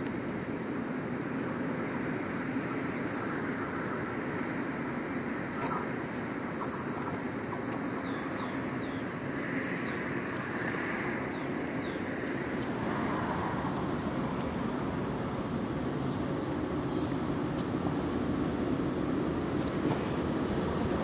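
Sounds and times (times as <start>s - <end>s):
train rumbling on track: 0.2s - 10.7s.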